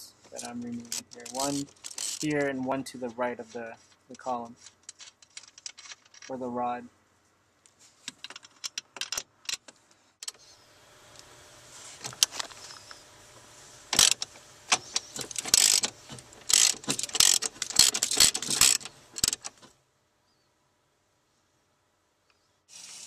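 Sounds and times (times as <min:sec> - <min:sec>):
socket ratchet clicking: 0:14.0 - 0:15.9, 0:16.5 - 0:19.6.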